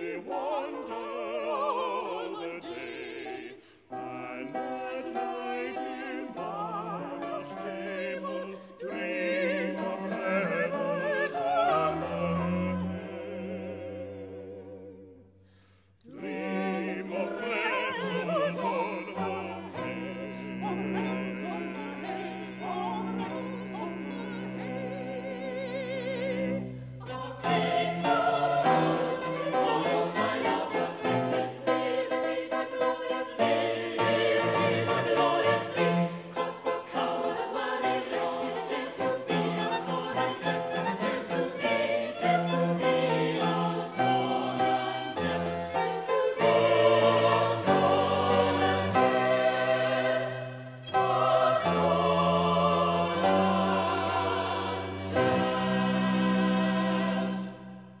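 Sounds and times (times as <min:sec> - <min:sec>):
small string ensemble: 0:00.0 - 0:15.2, 0:16.0 - 0:58.0
solo singers with vibrato: 0:00.0 - 0:15.2, 0:16.1 - 0:44.6.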